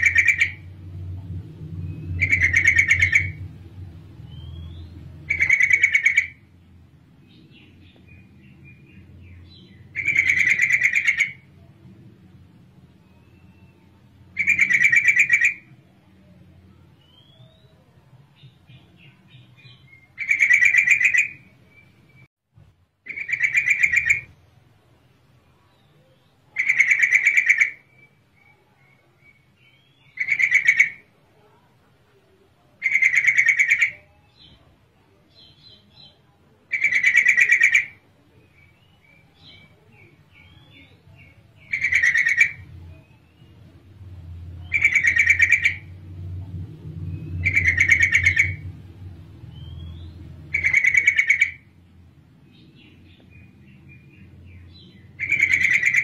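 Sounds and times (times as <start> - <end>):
bird trilled chattering: 0.0 - 0.7, 2.0 - 3.5, 4.3 - 6.5, 8.7 - 11.5, 13.2 - 15.7, 19.4 - 21.5, 23.1 - 24.4, 26.5 - 28.6, 29.3 - 31.1, 32.8 - 34.1, 36.7 - 38.0, 38.6 - 46.0, 47.2 - 48.8, 49.5 - 51.7, 52.9 - 56.0
low hum: 0.0 - 5.5, 42.5 - 50.7.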